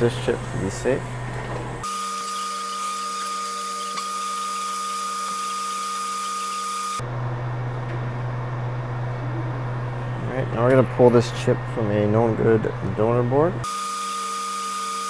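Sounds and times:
low steady hum: 7.0 - 13.7.

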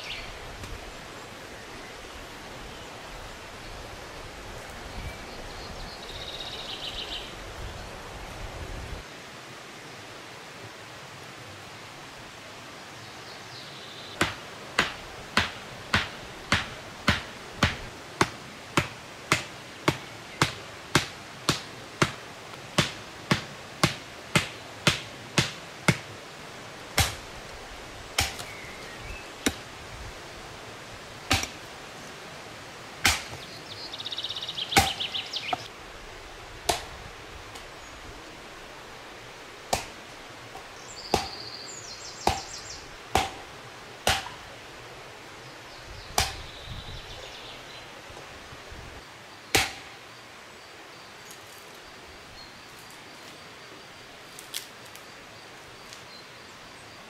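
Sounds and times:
hatchet blows on wood: 14.2 - 22.2, 41.1 - 41.4.

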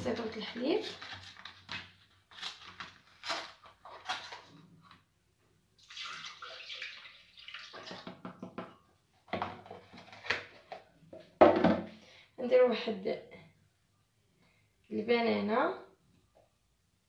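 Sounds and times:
milk pouring into a glass jar: 5.8 - 8.2.

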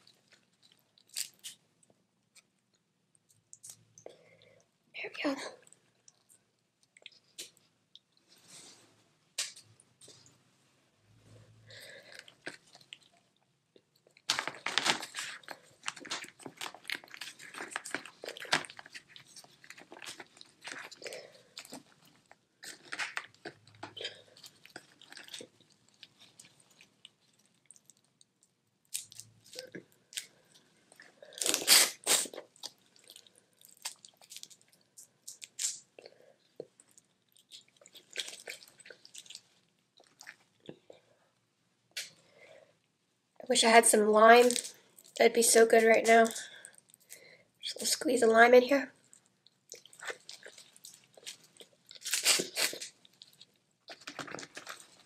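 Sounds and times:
chewing: 11.8 - 28.2, 28.9 - 41.1, 49.0 - 55.0
shells cracking and crunching: 14.1 - 26.1, 49.8 - 55.0.

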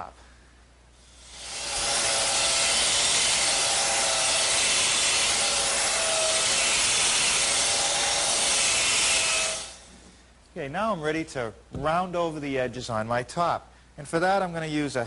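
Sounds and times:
belt sander on wood: 1.1 - 9.9.

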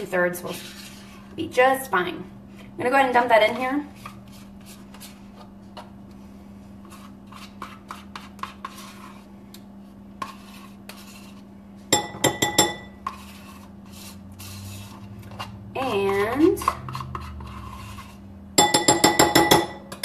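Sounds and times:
utensil scraping a tub: 0.0 - 1.4, 3.1 - 5.5, 6.8 - 9.3, 10.2 - 11.5, 13.0 - 18.4
utensil clinking against a bowl: 11.9 - 13.3, 15.2 - 17.6, 18.6 - 20.0.

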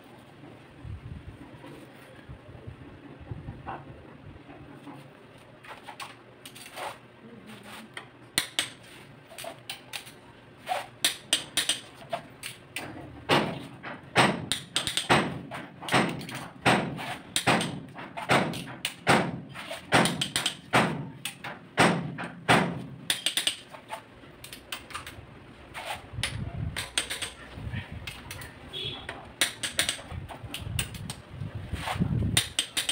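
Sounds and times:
torque wrench clicking: 29.4 - 31.2.

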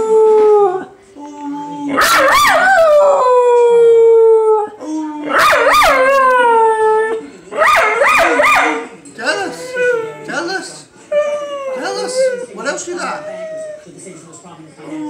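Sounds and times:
dog howling: 1.6 - 8.9, 11.1 - 13.9.

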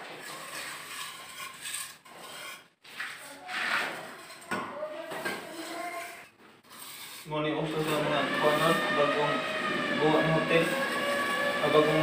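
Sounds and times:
trowel scraping wet cement: 0.0 - 12.0.

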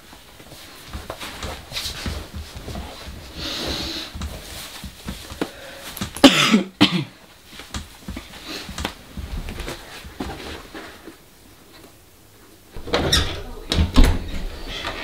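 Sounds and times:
man coughing: 6.2 - 7.2.

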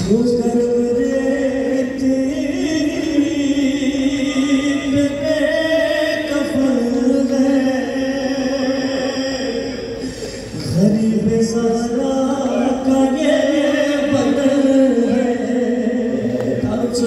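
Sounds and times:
man chanting into a microphone: 0.0 - 17.0.

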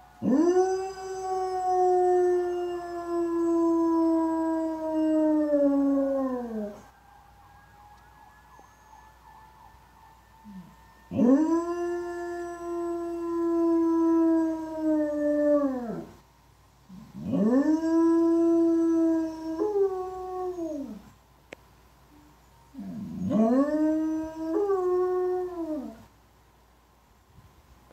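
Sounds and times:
dog howling: 0.2 - 6.9, 10.4 - 16.1, 16.9 - 21.0, 22.8 - 26.0
police sirens: 2.7 - 13.7.

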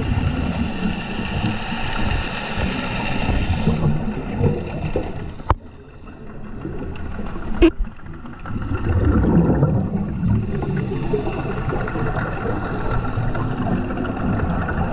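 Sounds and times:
exhaled bubbles rumbling: 0.0 - 14.9
diver breathing underwater: 8.5 - 14.9.

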